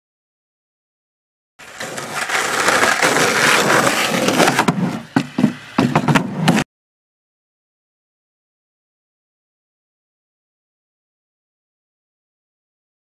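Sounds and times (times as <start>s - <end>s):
skateboard clacking on concrete: 1.6s - 6.6s
skateboard wheels rolling on asphalt: 1.6s - 6.7s.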